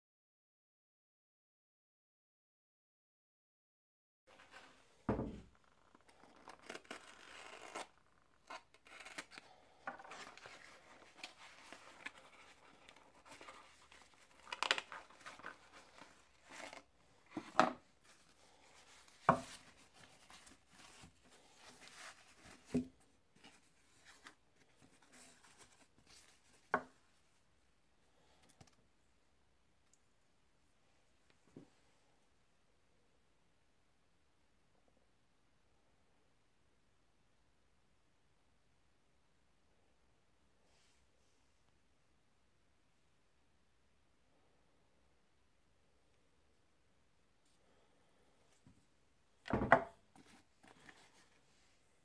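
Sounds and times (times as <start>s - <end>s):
plastic wrapping crinkling: 5.9s - 16.9s.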